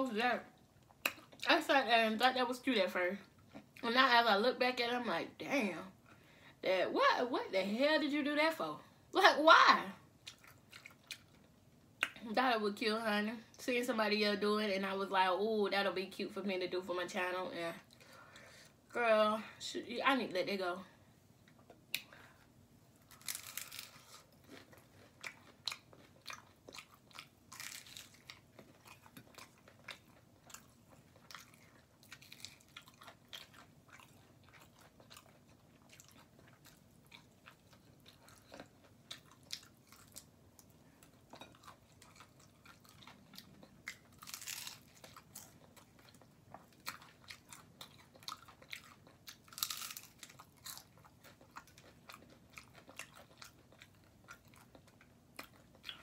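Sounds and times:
wet chewing: 10.2 - 12.2, 23.2 - 56.0
crunchy bites: 23.1 - 30.1, 43.8 - 45.6, 48.2 - 53.4.

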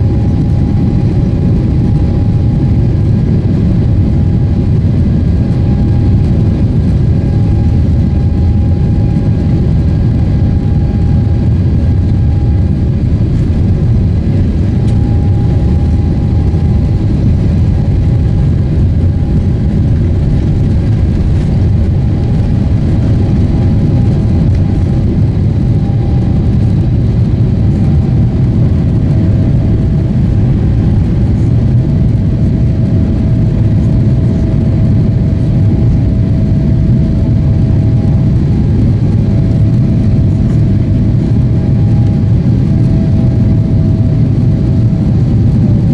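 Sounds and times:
jet engine rumble: 0.0 - 45.9.

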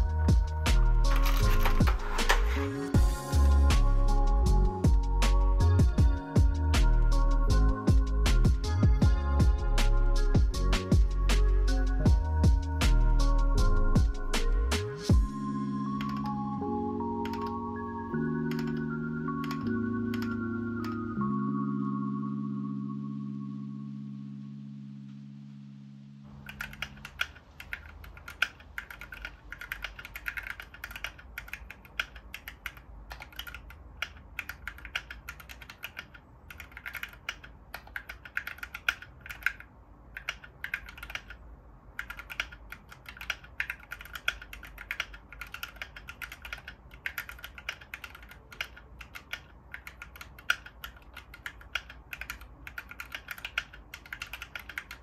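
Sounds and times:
music track: 0.0 - 27.2
mechanical keyboard key clacks: 1.1 - 2.6, 26.4 - 41.4, 42.0 - 55.0.

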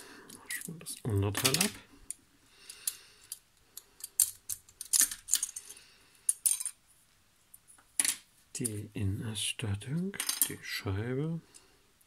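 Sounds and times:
toy car parts clicking and rattling: 2.8 - 5.7.

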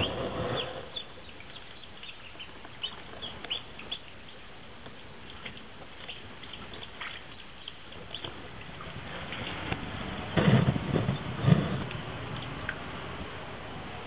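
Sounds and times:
ducklings peeping: 0.0 - 9.8.

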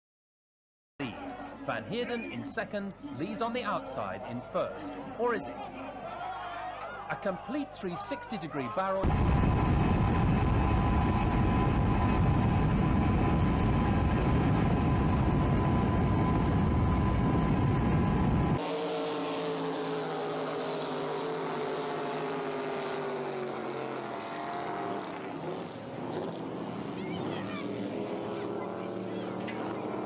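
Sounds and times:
thin steady whine: 9.0 - 24.3
motorboat engine running: 9.0 - 30.0
high-revving powerboat engine: 9.1 - 30.0.

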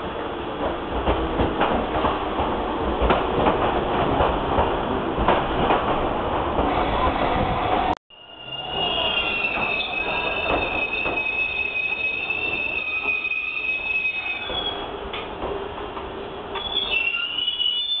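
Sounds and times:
low rumble of train cars: 0.0 - 18.0
train wheels squealing on rails: 8.1 - 15.0, 16.5 - 18.0.

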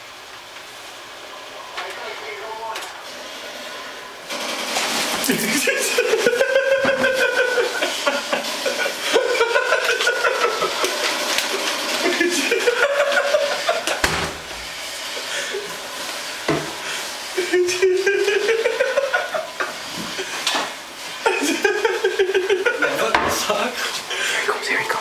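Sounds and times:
sharp knocks: 14.0 - 14.7.

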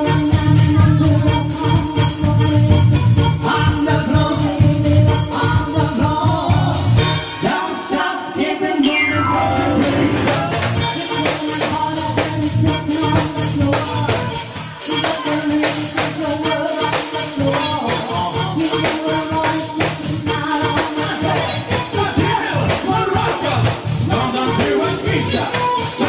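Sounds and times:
drum kit: 0.0 - 26.0
electronic keyboard: 8.8 - 11.4.

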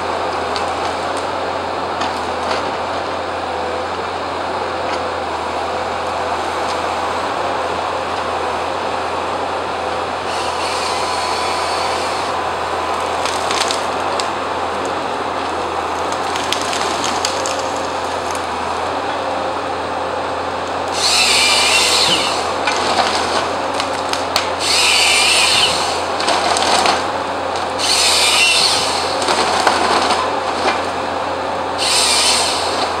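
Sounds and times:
forestry harvester running: 0.0 - 33.0
chainsaw cutting high whine: 10.1 - 14.0, 20.8 - 22.9, 24.4 - 29.5, 31.7 - 33.0.

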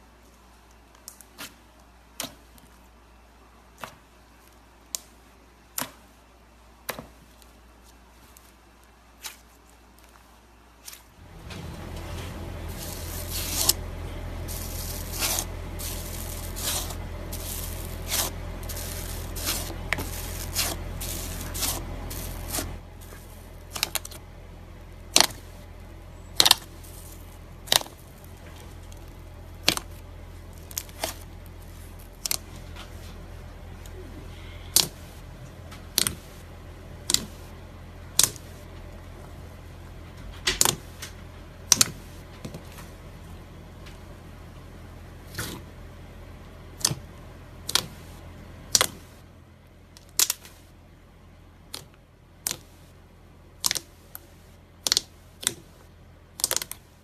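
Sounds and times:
low hum: 11.2 - 50.0
slime clicking and crackling: 12.7 - 24.2, 24.9 - 32.6, 34.7 - 35.2, 35.8 - 36.4, 37.0 - 37.5, 38.1 - 38.5, 47.6 - 48.1, 50.0 - 50.6, 51.7 - 52.8, 53.6 - 55.7, 56.3 - 56.9.

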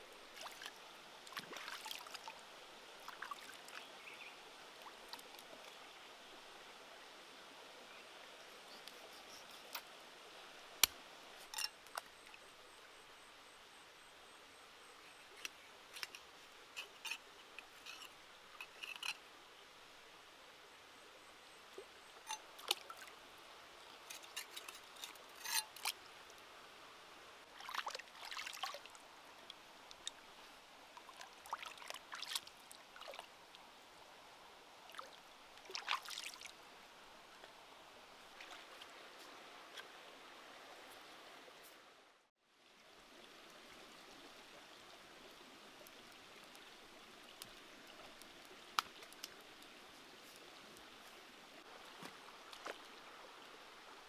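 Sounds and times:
stream water trickling: 0.0 - 54.0
splashes in shallow water: 0.3 - 2.3, 27.5 - 29.0, 34.9 - 36.5.

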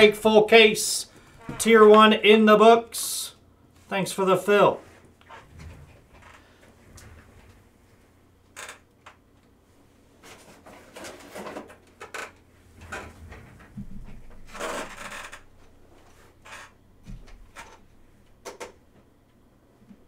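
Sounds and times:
rustling and scraping handling noises: 9.7 - 11.9.

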